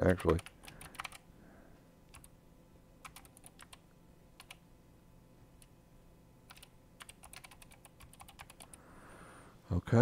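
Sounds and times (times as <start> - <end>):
computer keyboard keystrokes: 0.0 - 1.2, 2.1 - 2.3, 3.0 - 3.8, 4.4 - 4.6, 6.5 - 8.8.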